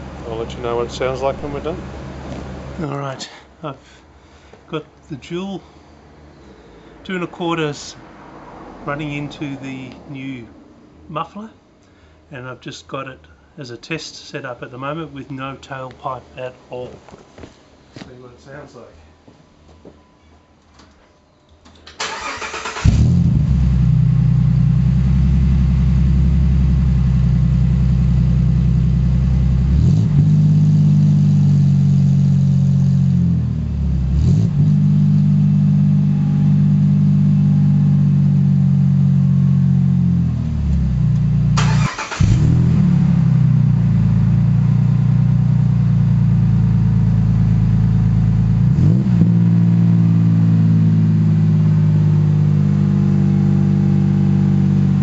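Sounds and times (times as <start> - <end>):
car engine idling and revving: 0.0 - 3.0, 6.1 - 11.0, 22.1 - 55.0.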